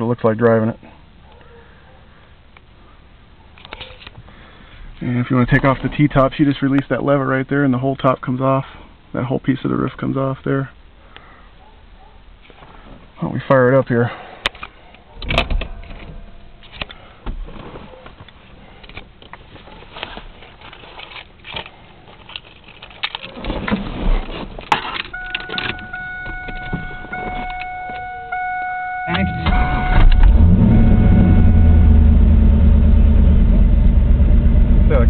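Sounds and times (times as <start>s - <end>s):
small clicks and rustles: 16.6s - 25.8s
car warning chime: 25.1s - 32.2s
car engine idling: 25.1s - 35.0s.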